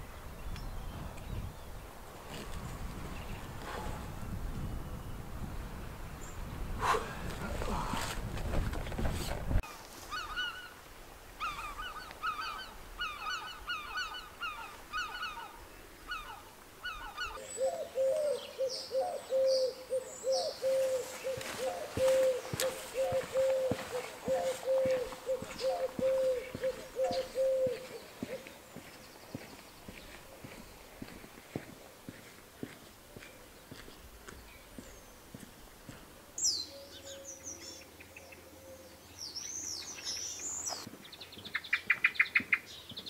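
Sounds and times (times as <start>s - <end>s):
birds honking: 20.5s - 27.9s
footsteps on pavement: 20.7s - 36.2s, 40.7s - 43.0s.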